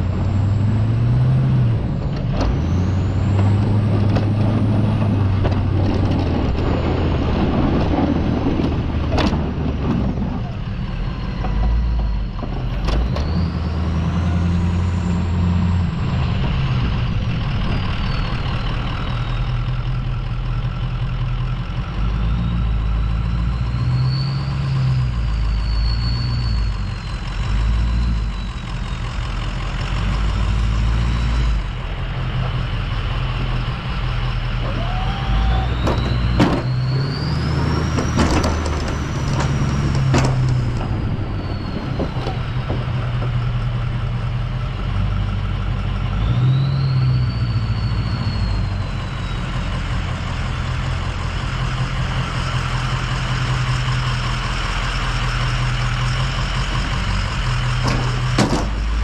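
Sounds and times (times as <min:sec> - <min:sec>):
diesel engine under load: 0:00.0 - 0:59.0
plow blade knocks: 0:35.7 - 0:36.9, 0:57.7 - 0:59.0.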